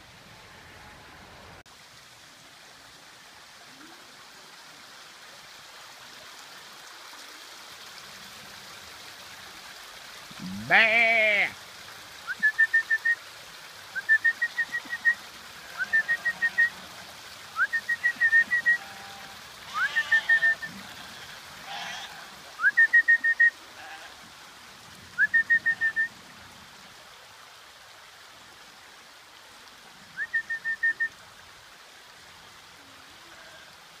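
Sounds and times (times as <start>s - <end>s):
bird whistling repeated phrase: 22.6s - 23.5s, 25.2s - 26.1s, 30.2s - 31.1s.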